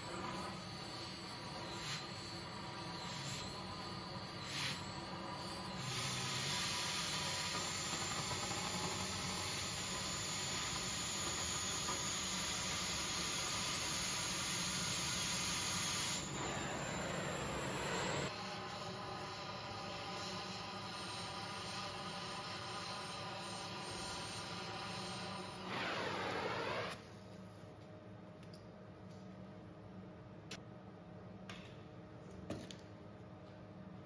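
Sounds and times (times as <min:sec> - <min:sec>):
cutting torch hissing: 0:00.0 - 0:27.0.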